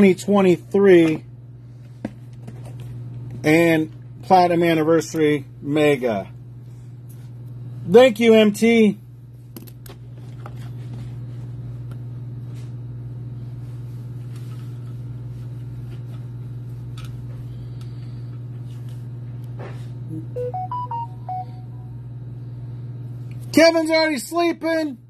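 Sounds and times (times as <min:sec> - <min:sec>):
steady low hum: 0:00.0 - 0:25.0
short electronic beeps: 0:20.3 - 0:21.9.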